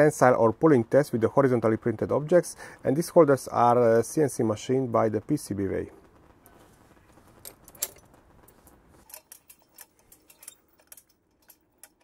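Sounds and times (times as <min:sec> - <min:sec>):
small clicks: 0:05.9 - 0:12.0
metallic clinks and rattles: 0:07.4 - 0:12.0.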